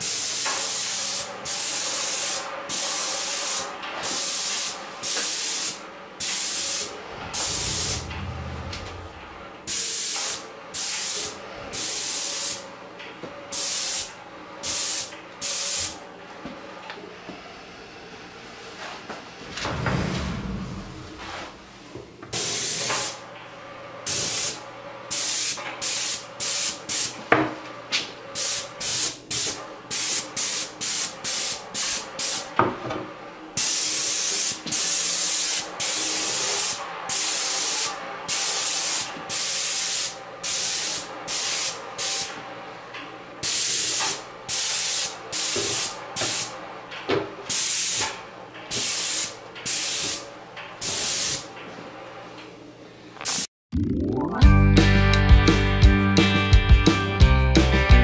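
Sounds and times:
paint spray gun hissing: 0.0s - 8.0s.

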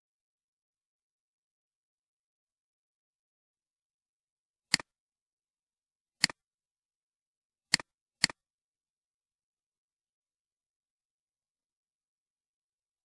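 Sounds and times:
computer mouse clicks: 4.7s - 4.9s, 6.2s - 6.4s, 7.7s - 8.4s.

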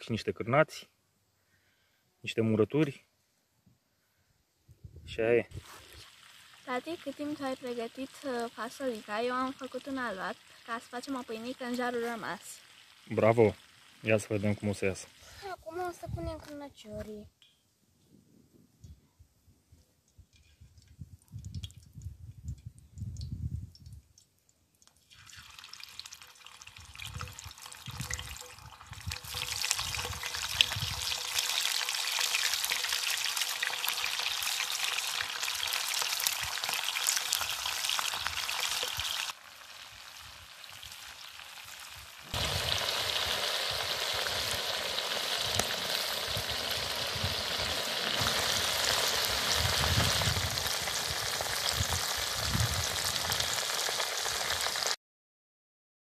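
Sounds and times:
sausages sizzling in a pan: 5.6s - 15.6s, 25.2s - 55.0s.

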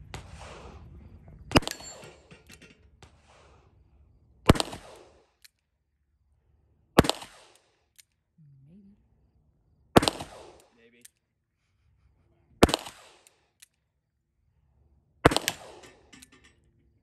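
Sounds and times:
revolver shots echoing: 1.5s - 2.3s, 4.5s - 5.2s, 7.0s - 7.6s, 10.0s - 10.7s, 12.6s - 13.3s, 15.2s - 16.2s
steel target ringing: 1.5s - 2.4s.

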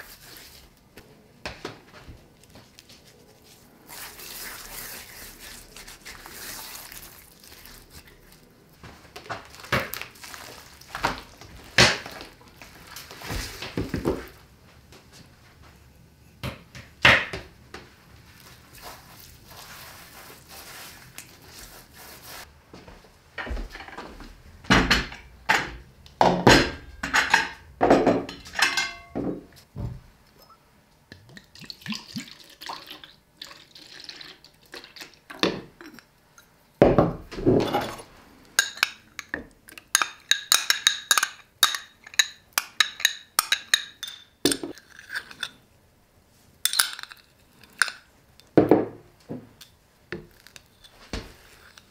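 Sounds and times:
spoon and glassware clinking: 27.0s - 29.4s, 39.9s - 45.6s, 46.7s - 48.1s
sauce pouring into bowl: 31.4s - 35.2s.

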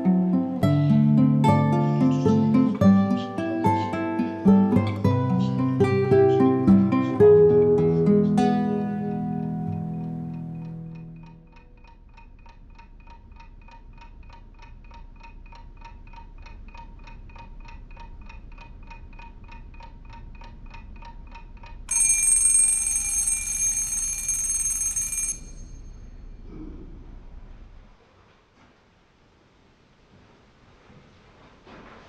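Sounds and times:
alarm clock ticking: 0.1s - 26.1s
alarm clock bell ringing: 21.9s - 26.3s.

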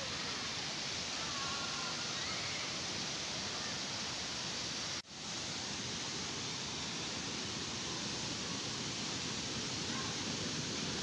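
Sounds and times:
river water and waterfall rushing: 0.0s - 11.0s.

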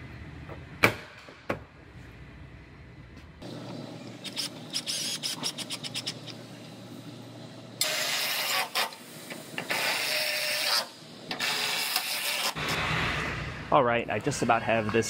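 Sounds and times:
electric ratchet running: 4.2s - 6.3s.

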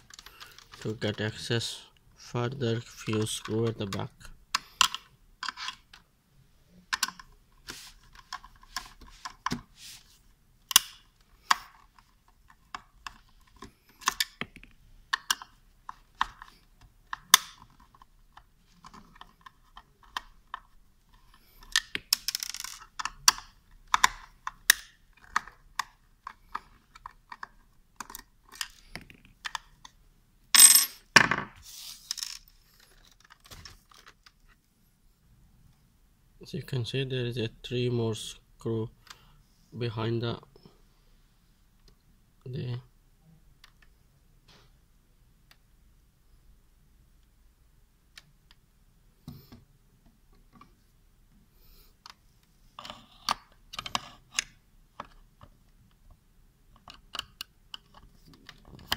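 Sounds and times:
hands shifting plastic parts: 0.0s - 6.1s, 30.6s - 34.6s.

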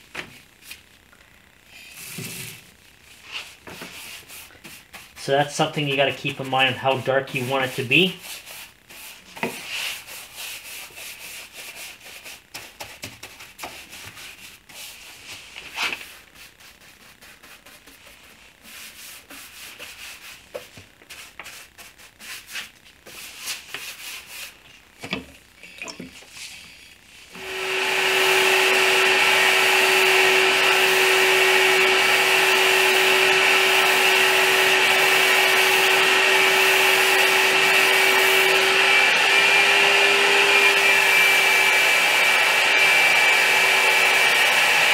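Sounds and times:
air supply hum: 27.0s - 44.9s
spray gun hissing: 27.4s - 39.0s
brush scrubbing stain onto wood: 27.9s - 38.6s.

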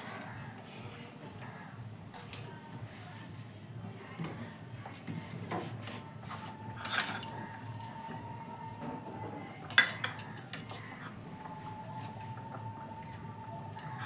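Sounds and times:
steel bowls being handled: 5.6s - 11.2s.

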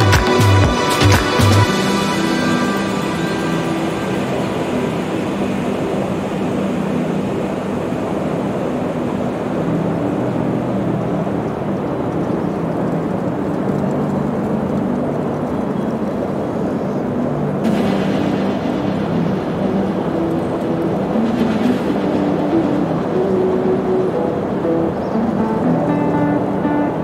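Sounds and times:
low engine drone: 0.0s - 27.0s
bright hiss: 16.3s - 25.1s.

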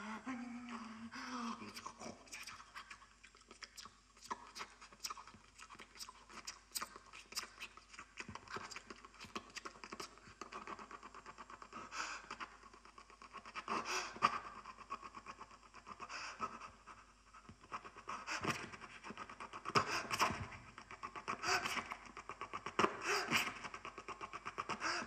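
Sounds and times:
man breathing and panting: 11.7s - 12.5s, 13.5s - 25.0s.

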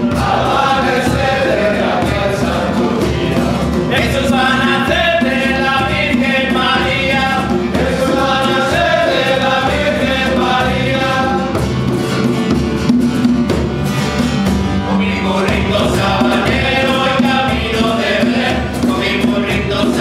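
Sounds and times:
men singing carol together: 0.0s - 11.8s, 14.8s - 20.0s
guitar: 0.0s - 20.0s
steady drum beat: 0.0s - 20.0s.

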